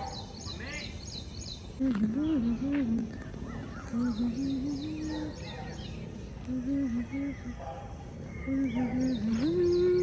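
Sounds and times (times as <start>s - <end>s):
birds chirping: 0.0s - 10.0s
person humming: 1.8s - 3.2s, 3.9s - 5.3s, 6.4s - 7.5s.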